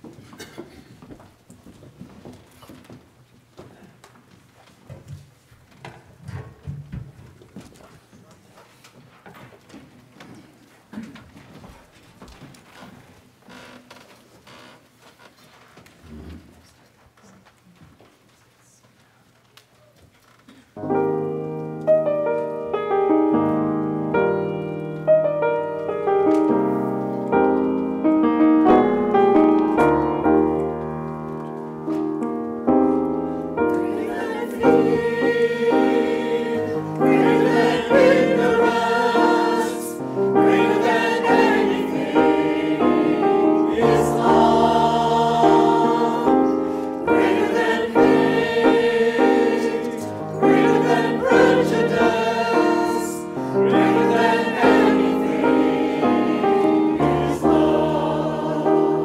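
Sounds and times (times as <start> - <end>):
grand piano playing: 20.8 - 59.0
mixed choir singing: 33.5 - 59.0.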